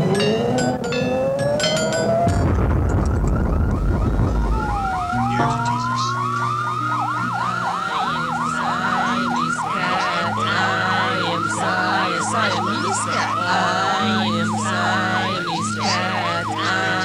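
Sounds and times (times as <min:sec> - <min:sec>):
low held bass notes: 0:00.0 - 0:07.7
siren wailing and yelping: 0:00.0 - 0:17.0
rushing noise burst: 0:02.4 - 0:05.9.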